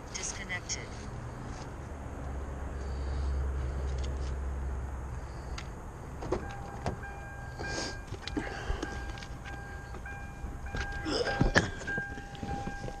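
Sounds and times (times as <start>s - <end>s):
electronic beep tone: 6.4s - 13.0s.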